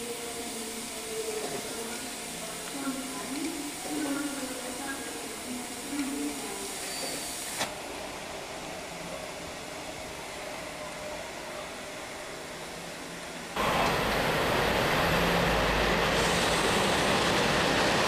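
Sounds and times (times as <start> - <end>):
steam locomotive hissing: 0.0 - 8.6, 13.6 - 18.0.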